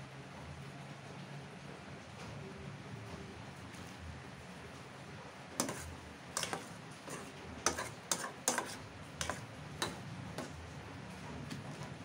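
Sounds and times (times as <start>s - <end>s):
metal utensil scraping saucepan: 5.6s - 10.6s.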